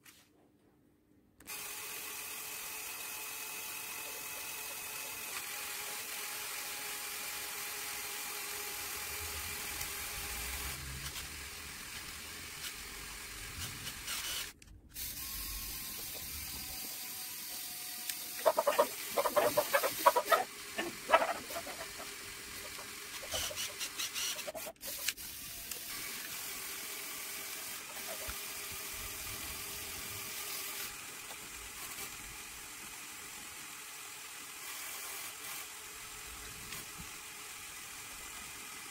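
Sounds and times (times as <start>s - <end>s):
toy electric motors whirring: 1.4s - 38.9s.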